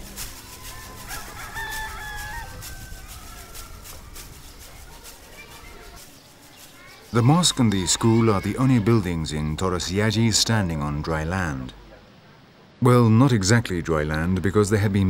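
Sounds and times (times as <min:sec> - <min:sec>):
low outdoor background: 0:00.0 - 0:15.0
rooster crowing: 0:00.4 - 0:04.4.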